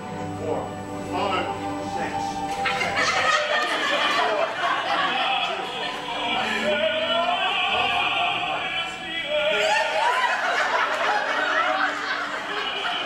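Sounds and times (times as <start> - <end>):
orchestra playing: 0.0 - 9.4
operatic singing: 0.0 - 13.0.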